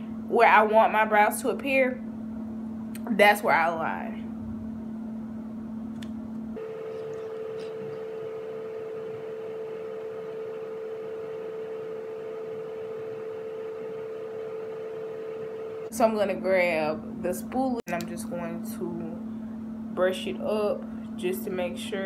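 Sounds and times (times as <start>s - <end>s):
steady hum jumping in pitch: 2.9s - 22.0s.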